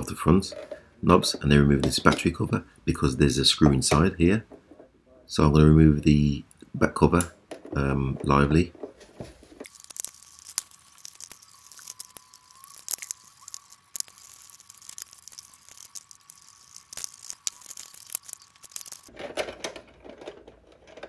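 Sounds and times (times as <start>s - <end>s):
faint steady tone: 9.8s - 19.1s.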